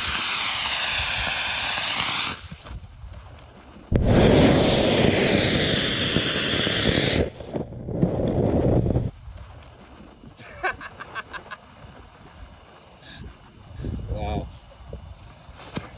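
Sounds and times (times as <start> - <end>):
rocket motor hissing: 0.0 - 15.9
rocket motor roaring: 3.9 - 7.6.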